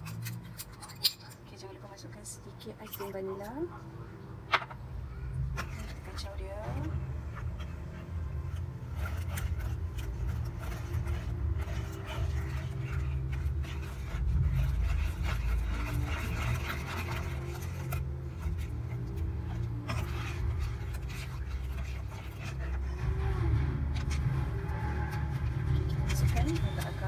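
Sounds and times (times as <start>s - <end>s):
steady low hum: 0.0s - 27.0s
spatula scraping saucepan: 5.4s - 27.0s.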